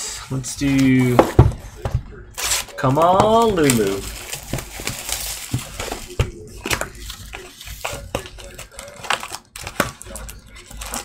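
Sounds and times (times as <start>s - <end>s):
foil packs rustling: 2.4s - 11.0s.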